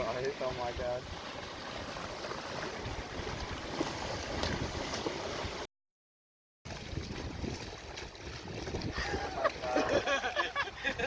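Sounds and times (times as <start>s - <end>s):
splashing in shallow surf: 0.0s - 5.7s, 6.7s - 11.0s
wind buffeting microphone: 6.8s - 9.5s.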